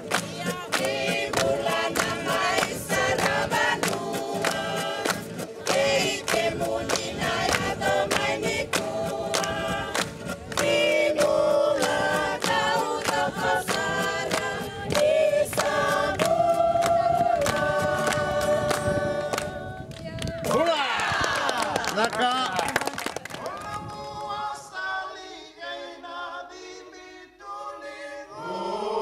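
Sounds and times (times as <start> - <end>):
strummed acoustic guitar: 0.0 - 19.4
group singing in harmony: 0.0 - 19.9, 23.4 - 29.0.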